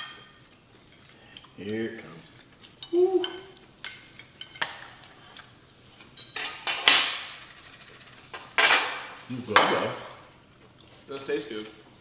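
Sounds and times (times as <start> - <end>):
cutlery clinking on plates: 0.0 - 1.2, 6.0 - 10.0.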